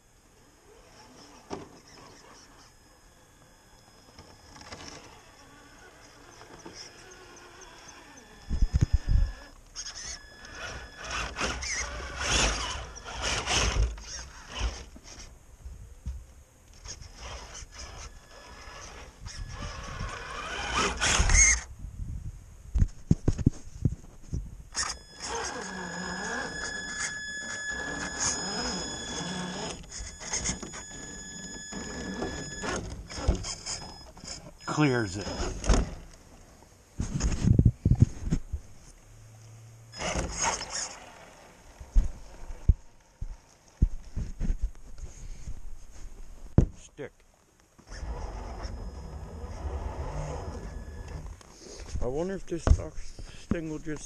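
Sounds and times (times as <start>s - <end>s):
electric motor whining: 0.0s - 15.3s, 16.7s - 21.7s, 24.7s - 36.6s, 39.3s - 43.6s, 47.8s - 51.9s.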